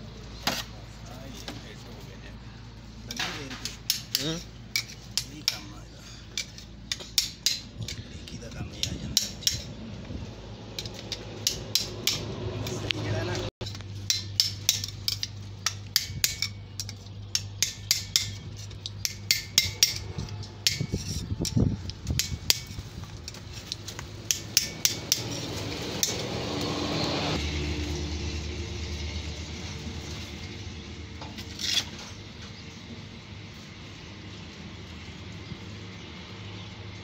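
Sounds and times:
steady low hum: 0.0s - 26.4s
steel tool clinking on metal: 3.1s - 9.8s, 13.6s - 26.3s.

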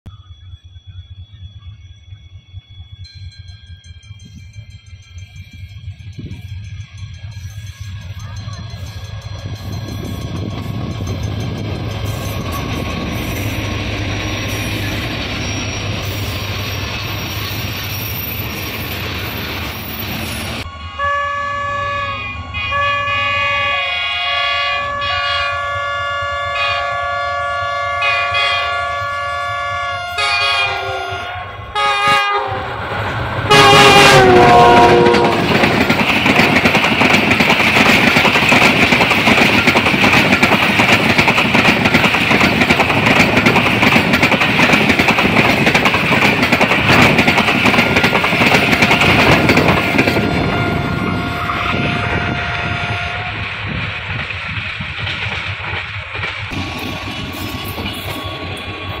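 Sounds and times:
train wheels rumbling and clattering: 0.1s - 20.7s, 25.5s - 59.0s
locomotive horn blasts: 20.6s - 32.8s, 33.4s - 35.7s, 48.8s - 53.5s.

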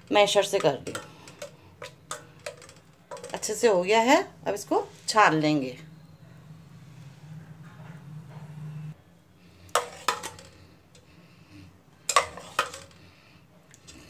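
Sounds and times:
steel utensils clinking on pot: 0.2s - 3.8s, 9.8s - 10.6s, 12.1s - 13.0s.

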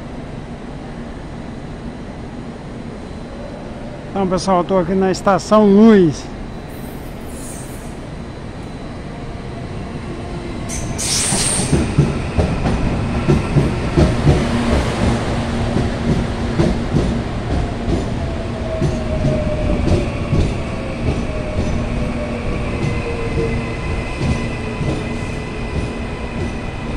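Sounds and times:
high thin squeal: 6.6s - 8.0s, 10.7s - 12.0s.

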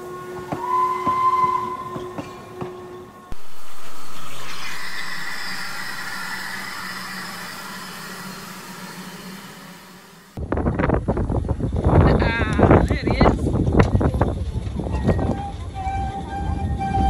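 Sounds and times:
steam locomotive hissing: 3.3s - 10.4s.

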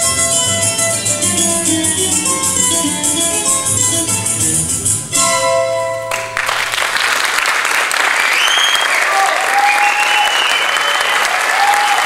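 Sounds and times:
audience applauding: 6.1s - 12.0s
cheers and whistles: 8.2s - 12.0s.

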